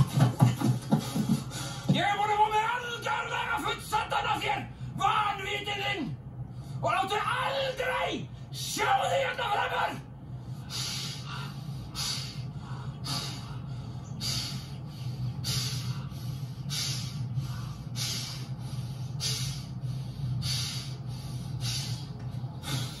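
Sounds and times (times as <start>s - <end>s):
low steady hum: 0.0s - 23.0s
heavy breathing through nose: 0.6s - 2.0s, 10.2s - 23.0s.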